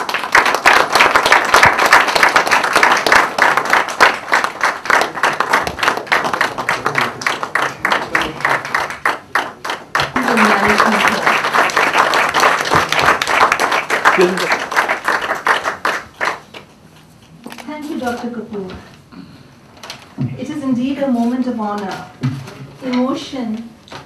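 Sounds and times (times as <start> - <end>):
audience applauding: 0.0 - 16.7.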